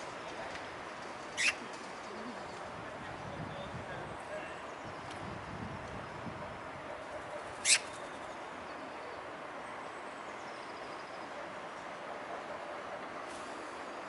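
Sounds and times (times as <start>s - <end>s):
small birds chirping: 1.4s - 2.7s, 7.6s - 9.1s.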